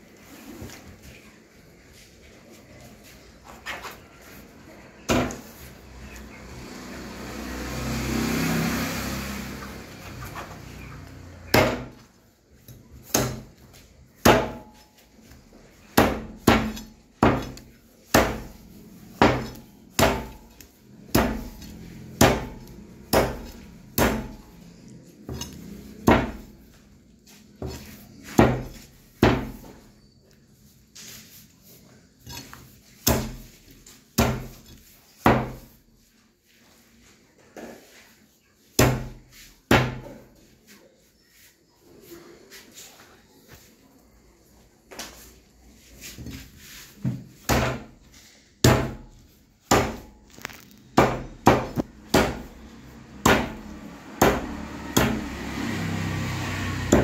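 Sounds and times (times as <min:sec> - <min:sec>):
meat cleaver chopping on wood block: 0:11.4 - 0:12.1, 0:13.0 - 0:14.8, 0:15.8 - 0:24.5, 0:25.3 - 0:26.6, 0:27.6 - 0:29.8, 0:32.4 - 0:33.6, 0:34.2 - 0:35.8, 0:38.8 - 0:40.1, 0:47.4 - 0:48.0, 0:48.6 - 0:50.2, 0:51.0 - 0:52.5, 0:53.1 - 0:55.8, 0:56.5 - 0:57.0.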